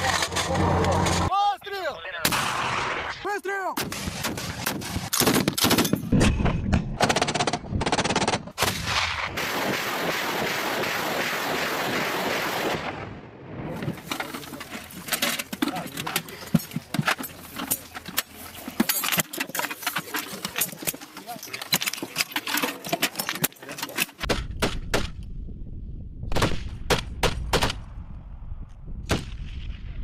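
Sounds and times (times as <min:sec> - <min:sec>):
tank gun shots and blasts: 0:03.8 - 0:13.2, 0:24.2 - 0:25.2, 0:26.3 - 0:28.0, 0:29.0 - 0:30.0.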